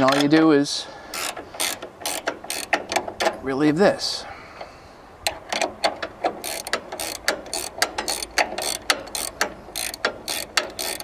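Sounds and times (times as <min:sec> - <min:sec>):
ratchet wrench clicking: 0:01.1 - 0:03.3, 0:05.2 - 0:11.0.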